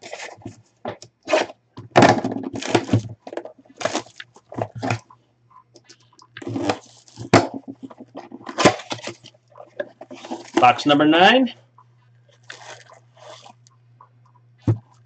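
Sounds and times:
plastic shrink wrap crinkling: 2.5 - 5.1, 5.9 - 10.9, 12.0 - 13.8.

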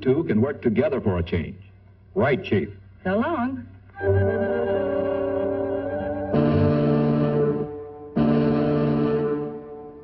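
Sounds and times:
orchestral music sustained chord: 4.0 - 10.0.

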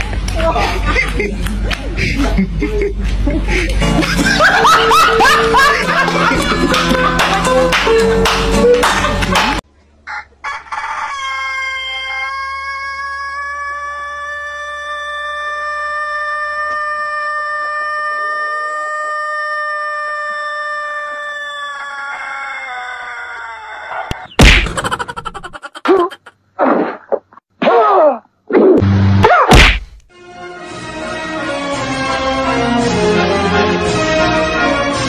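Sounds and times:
rooster crowing: 10.1 - 24.4.

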